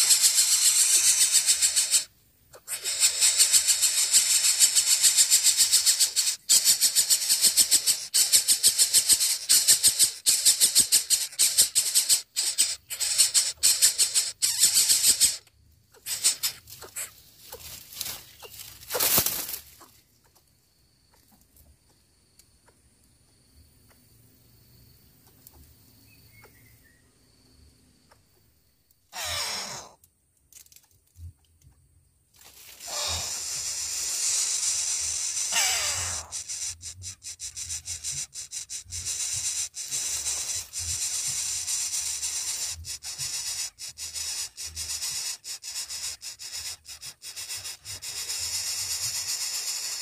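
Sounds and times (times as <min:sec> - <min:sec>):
nestlings hissing begging calls: 0:00.0 - 0:19.8, 0:29.1 - 0:30.0, 0:32.7 - 0:50.0.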